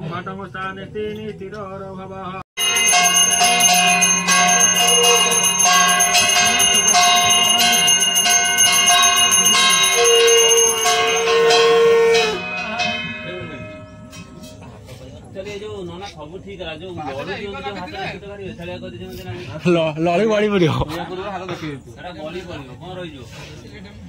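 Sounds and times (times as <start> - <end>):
bells ringing rapidly: 2.6 - 15.2
steady held tone: 2.6 - 15.3.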